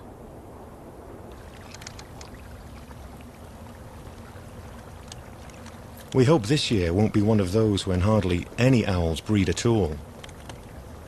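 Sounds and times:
meltwater trickling: 0.0s - 11.0s
faint ticks: 1.3s - 6.3s, 9.4s - 10.8s.

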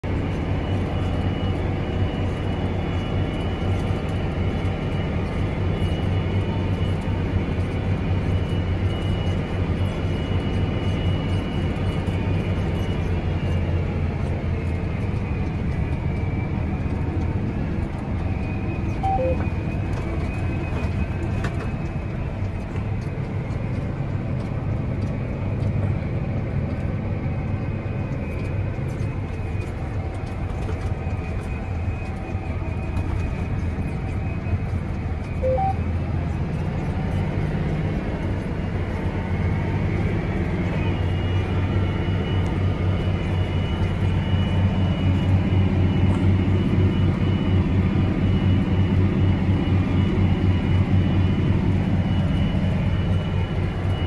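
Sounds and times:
tractor diesel engine drone: 0.0s - 54.0s
faint high whine: 18.2s - 22.4s, 27.6s - 36.8s
two short tones: 19.0s - 19.5s, 35.4s - 35.8s.

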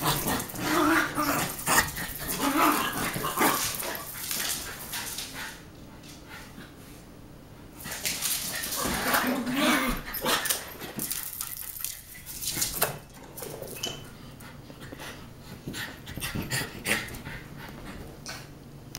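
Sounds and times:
dogs yipping and growling: 0.0s - 4.6s, 8.6s - 10.8s.

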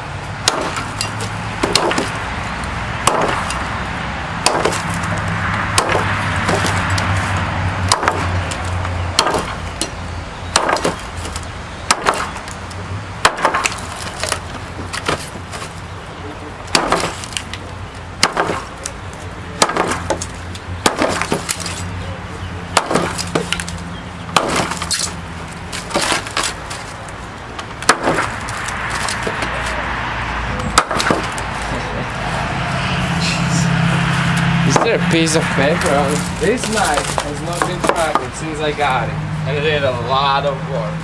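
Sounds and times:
knife chopping into log: 30.8s - 31.4s.

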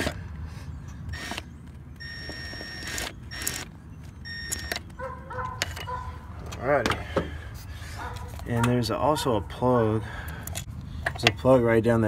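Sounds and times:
metallic clicks and scrapes: 4.5s - 6.6s.

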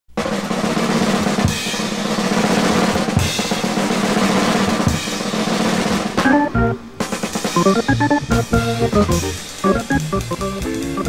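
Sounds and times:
jazz drum kit: 0.2s - 11.0s
bass drum accents: 6.2s - 11.0s
low held organ note: 7.6s - 11.0s.

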